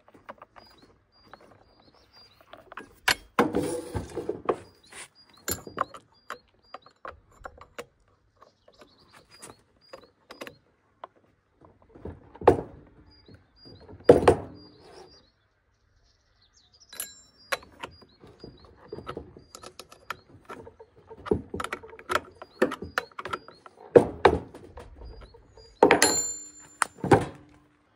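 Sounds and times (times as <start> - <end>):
metal clunks: 0.0 - 8.0, 8.7 - 15.1, 17.0 - 27.8
faint birds chirping: 0.0 - 27.9
wrench metal clicks and clinks: 17.0 - 17.9.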